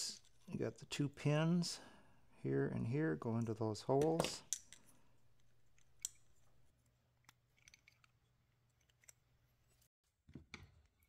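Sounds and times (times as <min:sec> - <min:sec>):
faint clicks of small parts: 0:03.3 - 0:09.9.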